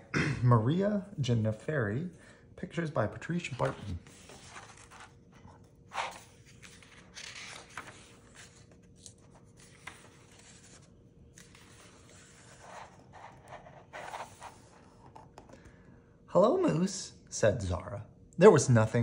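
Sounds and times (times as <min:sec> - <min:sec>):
book pages turning: 0:03.4 - 0:15.6
hand brushing pages: 0:03.6 - 0:15.2.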